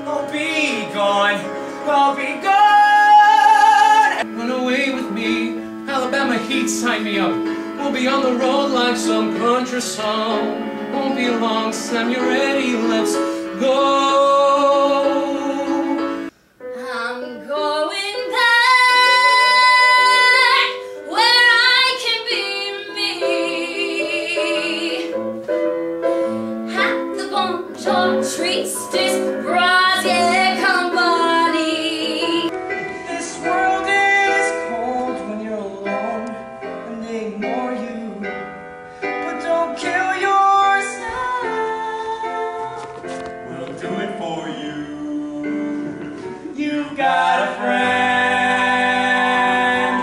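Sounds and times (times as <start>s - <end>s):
woman singing with accompaniment: 15.6s - 25.2s, 26.7s - 34.5s, 40.5s - 43.2s.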